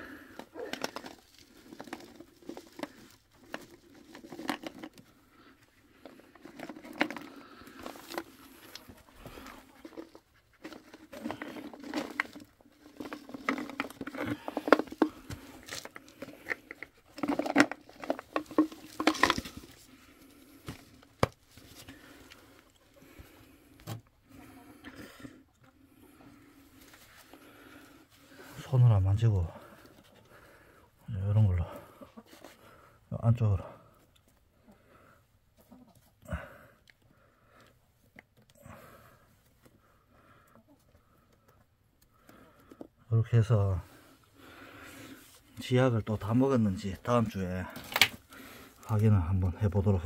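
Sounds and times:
tablets rattling in plastic bottle: 0:00.1 - 0:05.2, 0:05.9 - 0:20.0.

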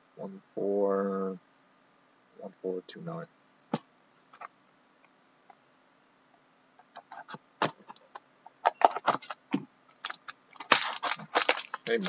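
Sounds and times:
knife slitting plastic wrap: 0:10.0 - 0:12.0.

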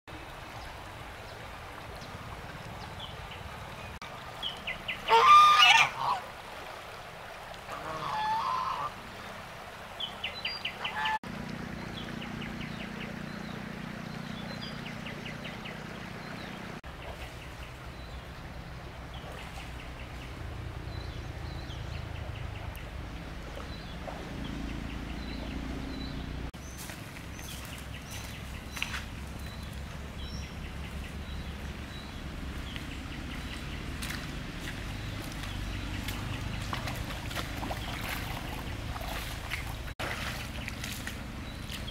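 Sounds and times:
waterfowl honking: 0:05.0 - 0:06.3, 0:07.7 - 0:09.0, 0:10.7 - 0:11.2.

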